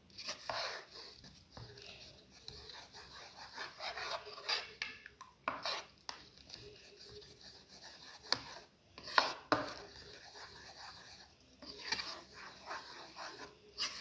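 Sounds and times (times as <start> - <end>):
spoon stirring thick batter: 0.0 - 14.0.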